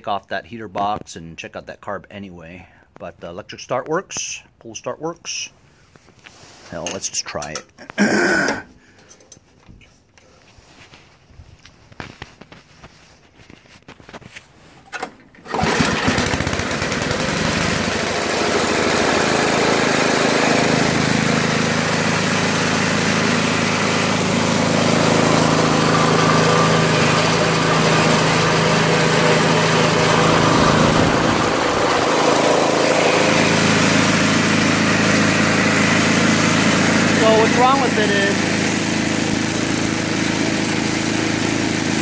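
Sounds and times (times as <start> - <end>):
snowblower engine running: 15.3 - 42.0.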